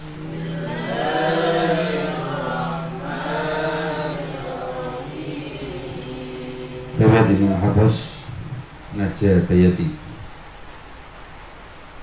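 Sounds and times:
steady low drone: 0.0 - 8.8
man chanting melodically: 6.8 - 10.2.

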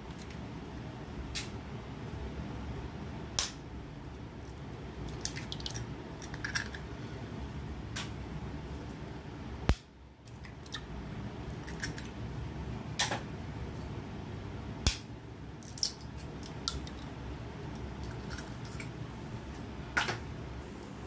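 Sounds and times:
steady low hum: 0.0 - 21.0
eggs cracking: 5.1 - 6.8, 11.5 - 12.2.

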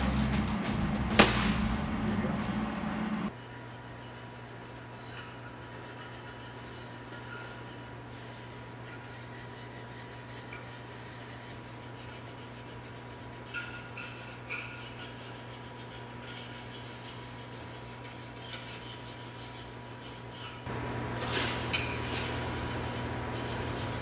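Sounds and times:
electrical hum: 0.0 - 3.4, 20.7 - 24.0.

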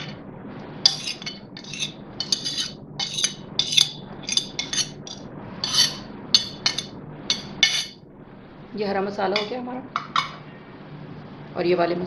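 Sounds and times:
metal spoon scraping ceramic plate: 0.9 - 8.0.

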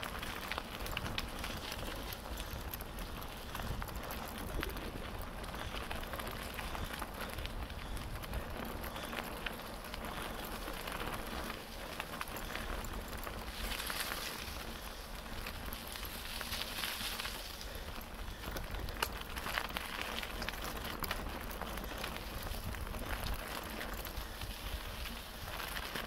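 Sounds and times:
bicycle tyres crackling over dry leaves: 0.0 - 26.0.

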